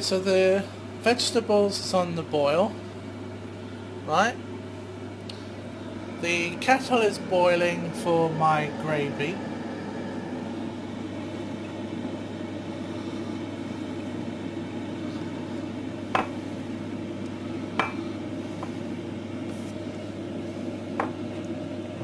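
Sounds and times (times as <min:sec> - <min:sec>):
electric kettle heating: 0:00.0 - 0:22.0.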